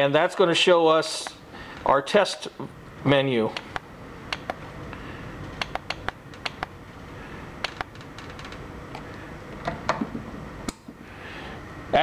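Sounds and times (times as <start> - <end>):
steady low background noise: 0.0 - 12.0
push buttons clicking: 5.6 - 6.7.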